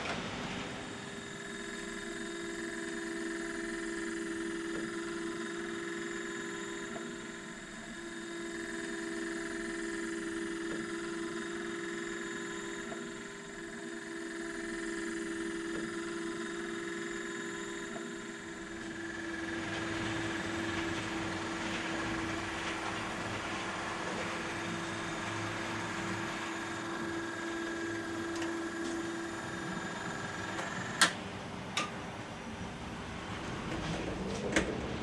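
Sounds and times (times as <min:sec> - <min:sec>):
model train motor humming: 0:18.8 - 0:31.1.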